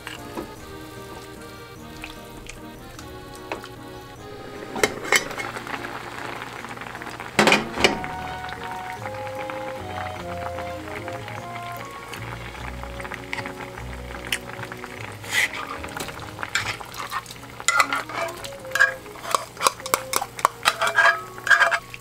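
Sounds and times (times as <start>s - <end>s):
broth simmering in a pan: 0.0s - 22.0s
light background music: 0.0s - 22.0s
metal pan lid clinking: 16.5s - 22.0s.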